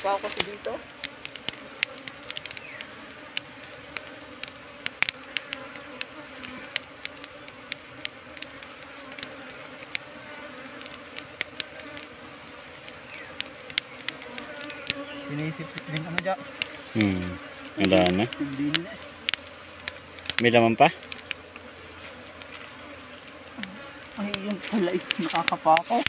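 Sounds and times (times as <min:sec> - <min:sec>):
honey bees buzzing: 0:00.0 - 0:26.0
sharp clicks: 0:00.3 - 0:10.1, 0:12.7 - 0:17.1, 0:17.8 - 0:21.7.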